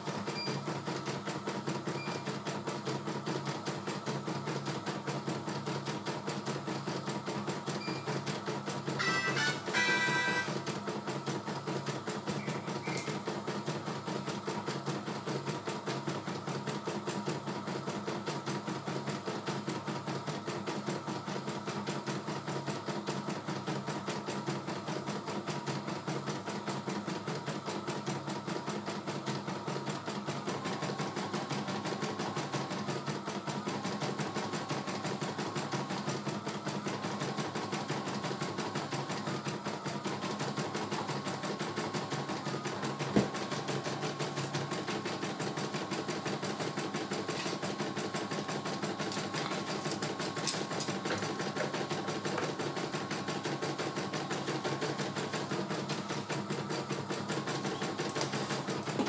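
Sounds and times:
embroidery machine stitching: 0:00.0 - 0:59.0
thin tone: 0:09.0 - 0:10.6.

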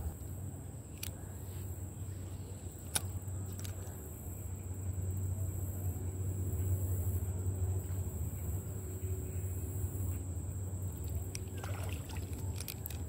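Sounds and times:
fishing tackle clicks: 0:11.0 - 0:13.0.

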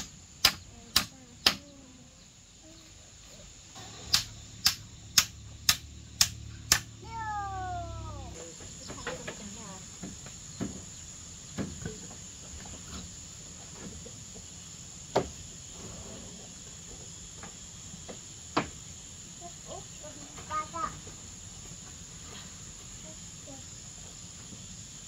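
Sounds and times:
hammer knocking on bamboo: 0:00.0 - 0:01.6, 0:04.1 - 0:06.9
high-pitched insect chorus: 0:00.0 - 0:25.0.

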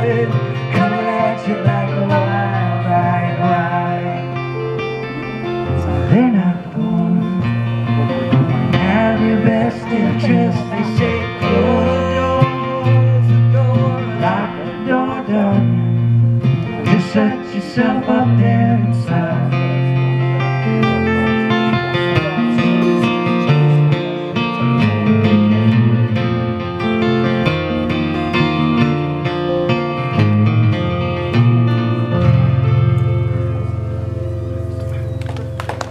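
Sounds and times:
person singing: 0:00.0 - 0:04.8, 0:05.7 - 0:20.0
strummed acoustic guitar: 0:00.0 - 0:35.1
amplified guitar: 0:00.0 - 0:35.9.

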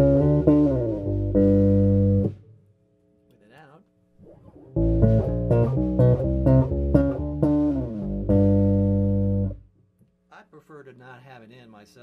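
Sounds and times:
electric bass guitar notes: 0:00.0 - 0:02.6, 0:04.2 - 0:09.7.

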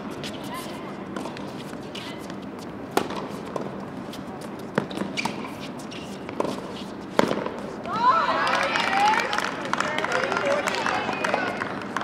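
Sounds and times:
racket hitting tennis ball: 0:01.1 - 0:03.8, 0:04.5 - 0:07.8.

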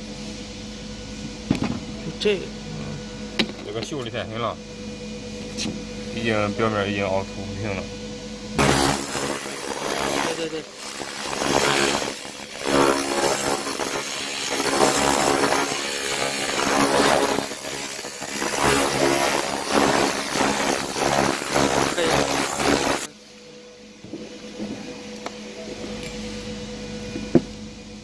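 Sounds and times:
steady machine hum: 0:00.0 - 0:28.0
laser crackling hiss: 0:08.6 - 0:23.1.

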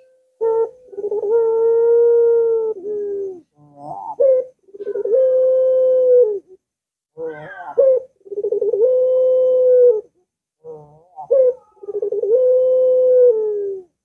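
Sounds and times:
dove cooing: 0:00.0 - 0:06.6, 0:07.2 - 0:14.0.

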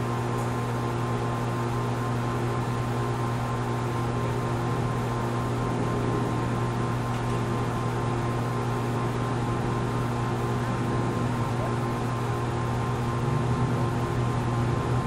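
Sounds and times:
steady machine hum: 0:00.0 - 0:15.0.

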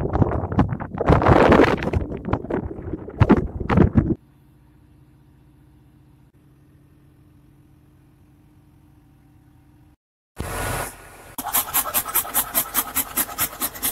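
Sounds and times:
wind buffeting microphone: 0:00.0 - 0:04.2
faint machinery hum: 0:04.2 - 0:10.0.

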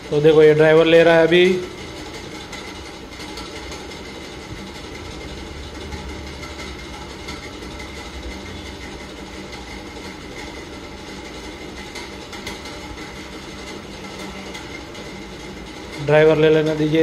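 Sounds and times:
background hum and rumble: 0:00.0 - 0:17.0.

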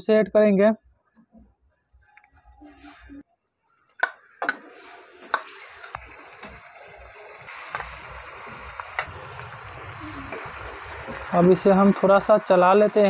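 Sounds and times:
chicken sizzling: 0:03.7 - 0:13.0.

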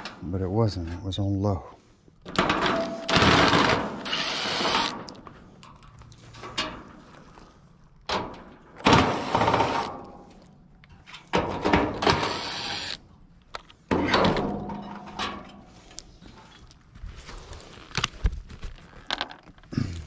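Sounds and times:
impact driver driving screws: 0:03.0 - 0:05.1, 0:08.8 - 0:09.9, 0:12.0 - 0:13.0.

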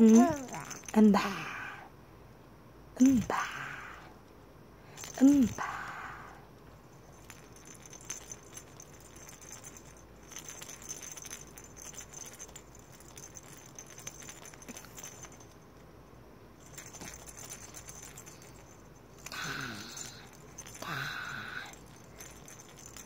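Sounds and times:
baby toy rattling and jingling: 0:00.0 - 0:01.4, 0:05.0 - 0:05.9, 0:06.9 - 0:15.7, 0:16.6 - 0:23.0.

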